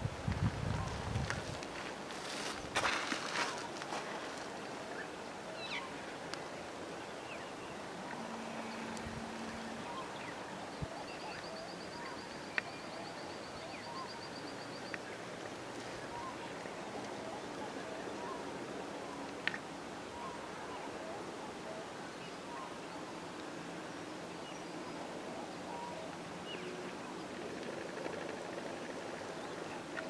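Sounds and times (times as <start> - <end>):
steady outdoor hiss: 0.0 - 30.0
birds chirping: 4.9 - 15.2.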